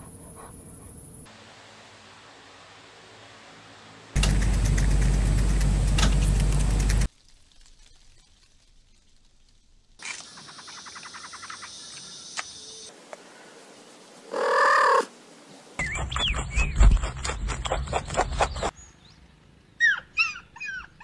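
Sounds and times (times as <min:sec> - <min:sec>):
loud pitched animal call: 0:14.3 - 0:15.1
chirping glides: 0:15.6 - 0:18.7.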